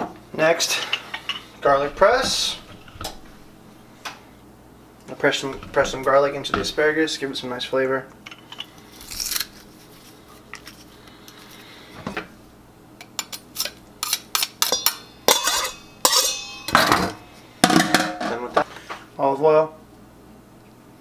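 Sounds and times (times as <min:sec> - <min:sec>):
metal clinks and scrapes: 0:14.7 - 0:16.8.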